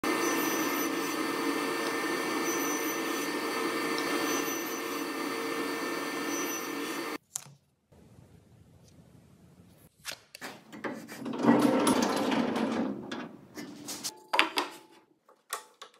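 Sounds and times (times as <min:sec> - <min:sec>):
table saw whining: 0:00.0 - 0:07.2.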